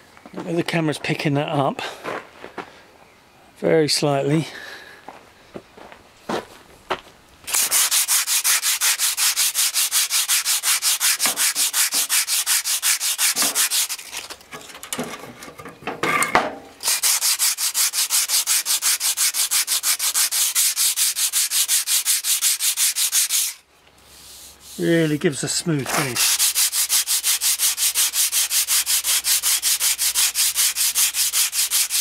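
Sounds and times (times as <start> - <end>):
sanding block rubbing stone: 7.5 - 14.3, 16.8 - 25.3, 25.9 - 32.0.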